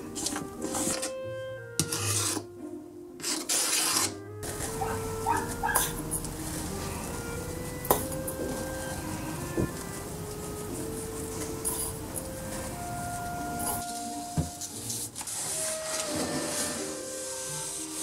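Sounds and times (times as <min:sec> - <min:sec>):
soft background music: 0:00.0 - 0:18.0
spatula scraping steel bowl: 0:00.2 - 0:01.2, 0:01.8 - 0:02.5, 0:03.2 - 0:06.7.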